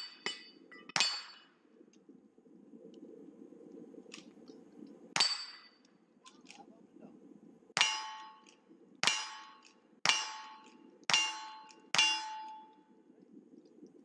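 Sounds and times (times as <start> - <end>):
steel target ringing: 7.8 - 12.8.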